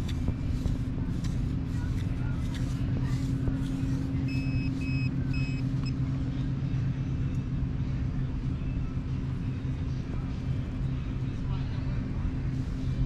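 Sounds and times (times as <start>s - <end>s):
steady low rumble: 0.0s - 13.0s
short high beeps: 4.3s - 5.7s.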